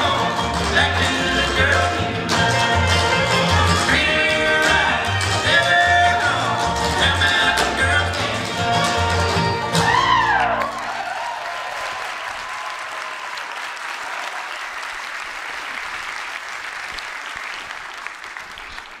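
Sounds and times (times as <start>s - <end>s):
audience applauding: 8.0s - 19.0s.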